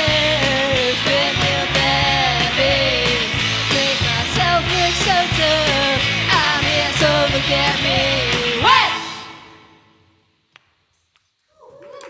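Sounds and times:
person singing: 0.0s - 9.5s
drums beating: 0.0s - 9.8s
pop band playing live: 0.0s - 9.8s.

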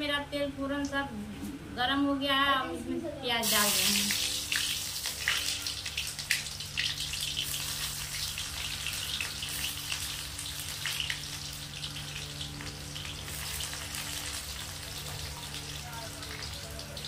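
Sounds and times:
onions sizzling in hot oil: 3.4s - 17.0s.

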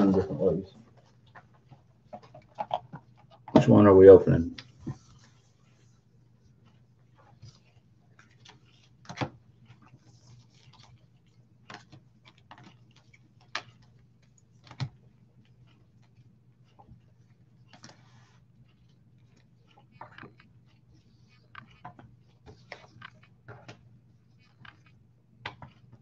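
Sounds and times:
card rustling: 7.2s - 15.0s, 17.6s - 25.9s.

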